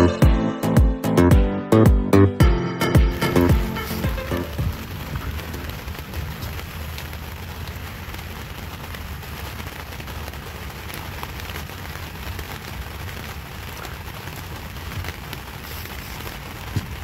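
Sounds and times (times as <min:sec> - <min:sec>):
steady low rumble: 0:02.4 - 0:10.5
rain pattering on boat: 0:02.8 - 0:17.0.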